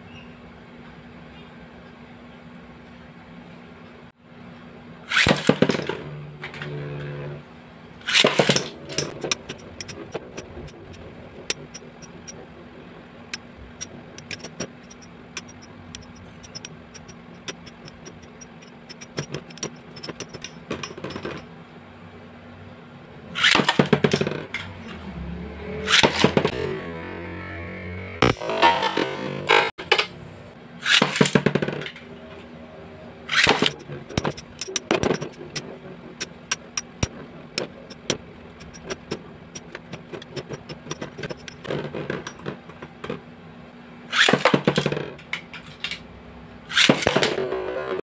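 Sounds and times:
spinning tops clashing: 8.1 - 12.4
spinning tops rattling: 8.1 - 12.4, 13.8 - 21.4, 33.3 - 35.6.

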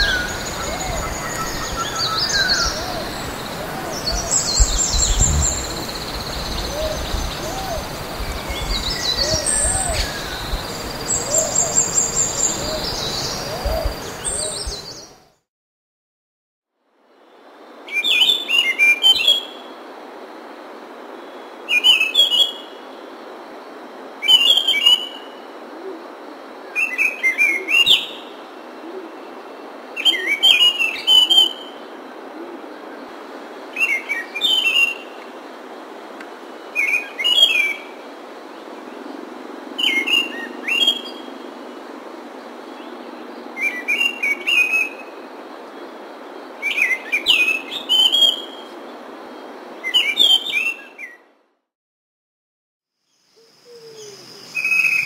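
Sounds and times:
thrush singing: 0.0 - 15.1
recording hiss: 0.0 - 15.4, 16.8 - 51.2, 53.1 - 55.0.

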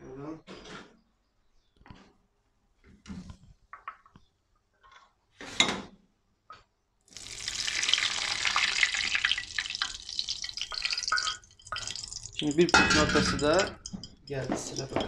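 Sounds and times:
hot butter sizzling and crackling: 7.1 - 15.0.

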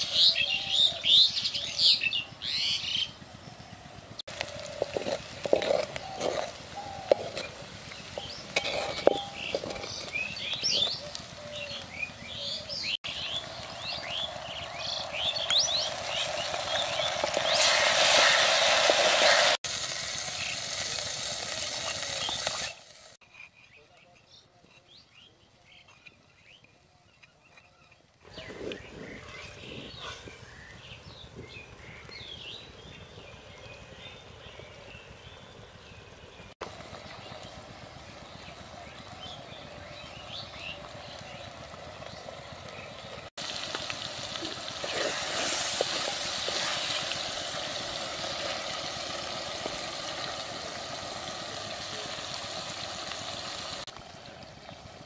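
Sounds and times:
small birds chirping: 0.0 - 18.4, 22.0 - 54.8
curry bubbling in a pot: 4.3 - 19.6, 36.6 - 55.0
onions sizzling in hot oil: 4.3 - 23.2, 40.2 - 55.0.

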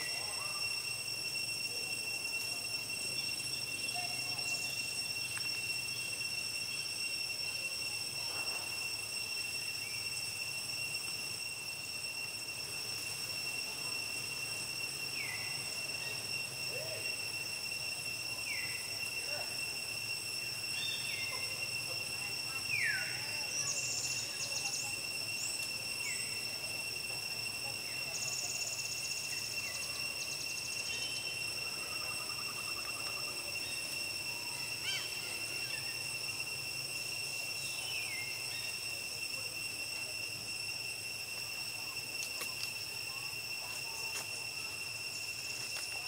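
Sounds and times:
insects droning: 0.0 - 46.0.

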